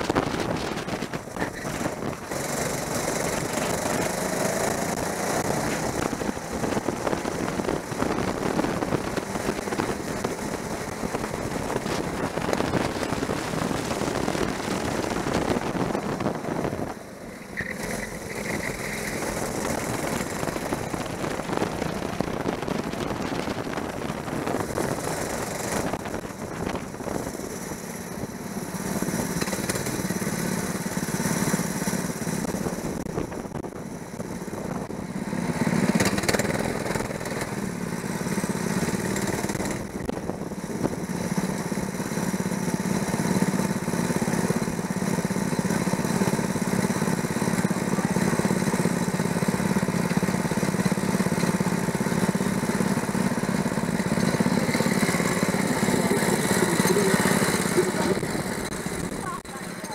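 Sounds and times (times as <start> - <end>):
wind on microphone: 0.0 - 2.4, 5.4 - 17.1, 19.4 - 27.4, 32.5 - 35.0
kart engine running hard: 0.0 - 59.9.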